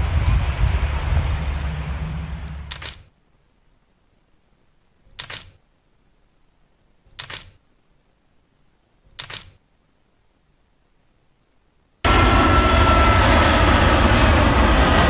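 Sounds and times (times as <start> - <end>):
camera shutter clicking: 2.7 - 3.1, 5.1 - 5.6, 7.1 - 7.6, 9.1 - 9.6.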